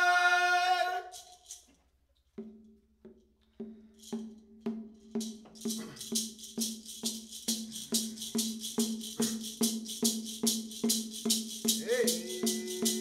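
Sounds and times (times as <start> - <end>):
horn rattles shaking: 1.1 - 2.0, 5.0 - 13.0.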